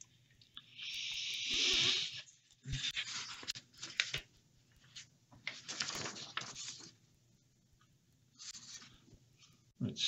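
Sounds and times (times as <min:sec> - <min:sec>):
paper rustling: 0:02.7 - 0:07.0, 0:08.4 - 0:09.6.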